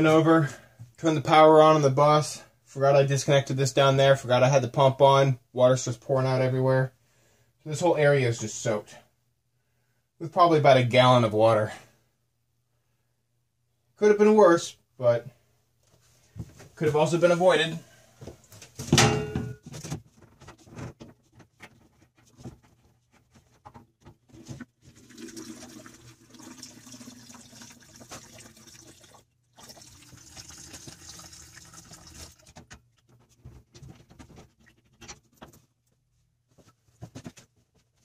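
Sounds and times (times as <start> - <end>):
loud metal clank: 18.9 - 19.6
water running and splashing: 24.9 - 32.6.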